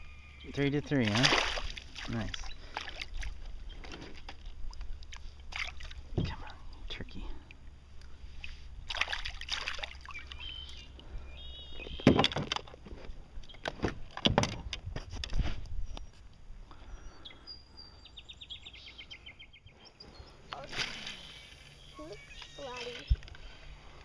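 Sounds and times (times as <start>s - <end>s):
bird chirping: 0.0s - 1.0s, 10.0s - 12.2s, 15.8s - 23.2s
fish splashing at surface: 1.2s - 2.1s.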